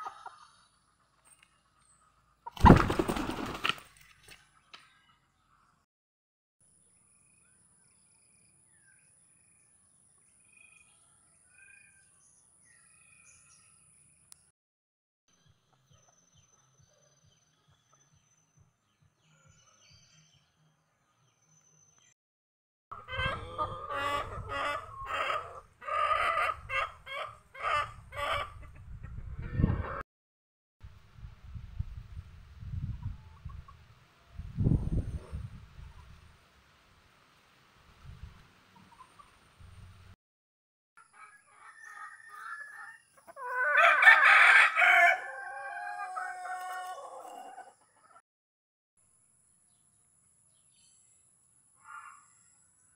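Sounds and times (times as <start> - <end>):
chicken clucking: 0.0 - 0.6, 23.0 - 30.0
rooster crowing: 41.0 - 47.8.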